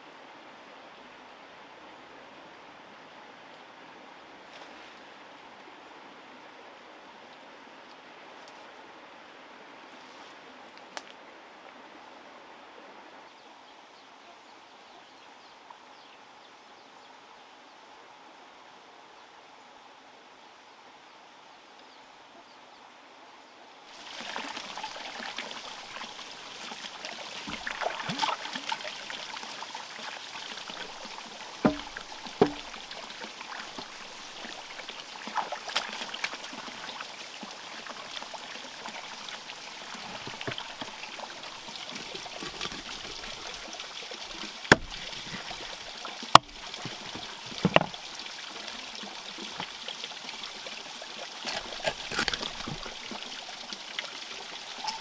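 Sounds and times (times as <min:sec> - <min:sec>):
water trickling: 0:23.9 - 0:55.0
sharp knocks: 0:31.6 - 0:32.6, 0:44.7 - 0:45.0.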